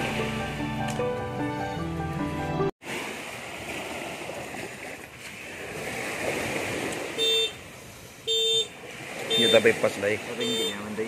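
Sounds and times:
horn toots: 7.2s - 7.6s, 8.2s - 10.9s.

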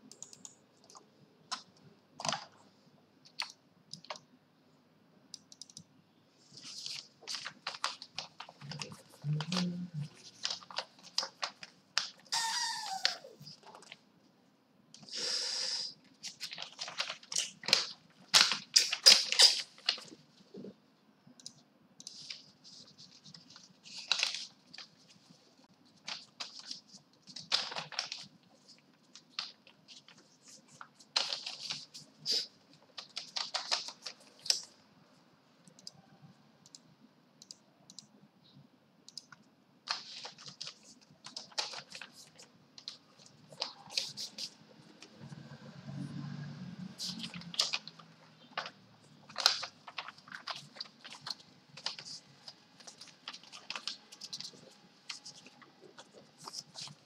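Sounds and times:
keyboard typing: 0.0s - 2.6s, 3.2s - 4.3s, 5.3s - 5.9s.

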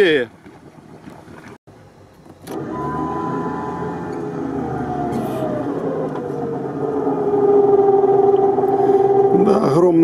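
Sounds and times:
electric winch motor whining: 2.4s - 9.5s.

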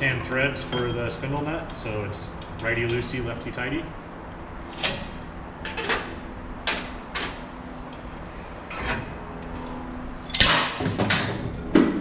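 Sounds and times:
metallic clatter: 8.6s - 11.6s.

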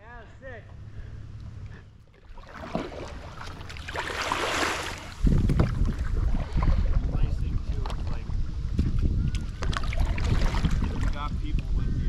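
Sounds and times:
wind buffeting microphone: 0.8s - 12.0s
water splashing around kayak: 2.1s - 11.7s.

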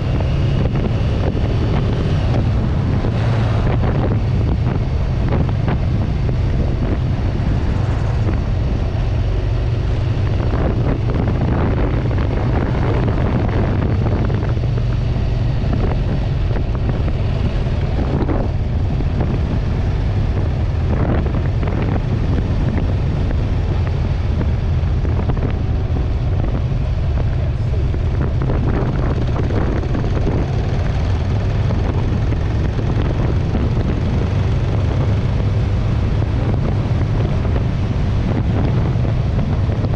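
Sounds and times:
motorcycle engine drone: 0.0s - 39.9s
wind buffeting microphone: 0.0s - 39.9s.

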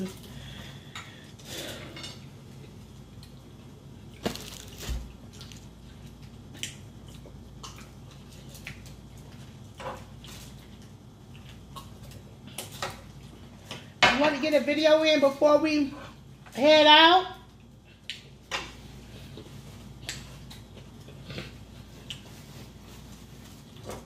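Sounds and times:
chewing: 2.5s - 13.8s, 19.0s - 24.0s.

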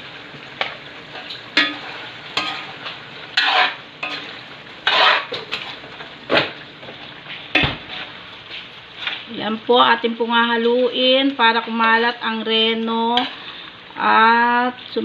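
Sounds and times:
frying sizzle: 0.0s - 15.0s
metal utensil scraping a wok: 1.1s - 5.7s, 13.1s - 13.6s.

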